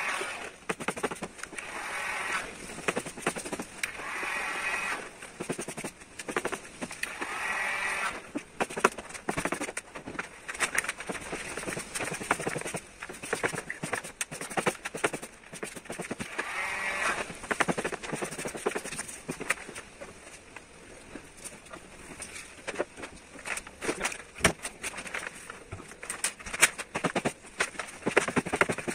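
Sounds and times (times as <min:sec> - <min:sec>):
vinyl film crackling and rustling: 0:08.2 - 0:16.3, 0:17.2 - 0:28.9.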